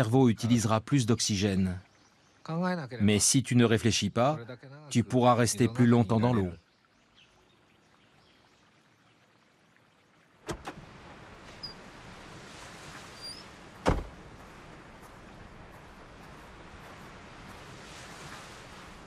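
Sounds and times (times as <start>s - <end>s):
wind: 0.0s - 19.0s
car door clicks: 10.5s - 10.8s, 13.8s - 14.2s
car door slamming shut: 10.5s - 10.8s, 13.8s - 14.2s
surf: 10.7s - 19.0s
faint bird chirps: 11.5s - 11.9s, 13.0s - 13.5s.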